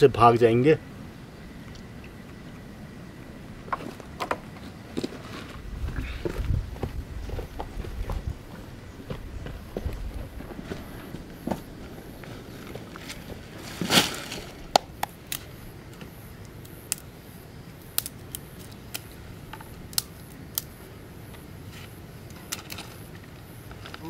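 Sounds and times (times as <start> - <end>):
loud crunch: 12.3 - 15.4
sharp snaps and clicks: 16.4 - 17.1, 17.8 - 20.8.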